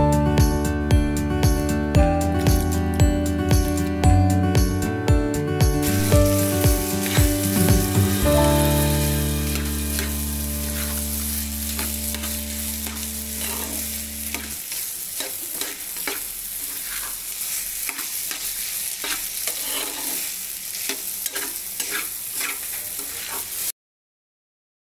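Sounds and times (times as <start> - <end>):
frying sizzle: 2.4 - 2.8, 5.8 - 23.8
spatula scraping frying pan: 5.9 - 23.7.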